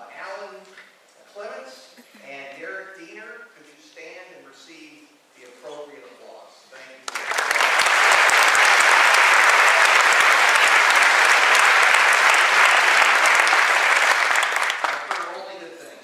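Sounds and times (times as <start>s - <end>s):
audience applauding: 7.1s - 15.5s.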